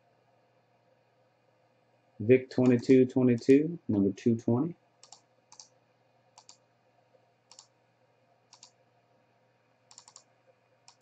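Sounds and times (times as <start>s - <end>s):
computer mouse clicking: 2.6s - 3.6s, 5.0s - 5.8s, 6.4s - 6.6s, 7.5s - 7.8s, 8.5s - 8.8s, 9.9s - 11.0s.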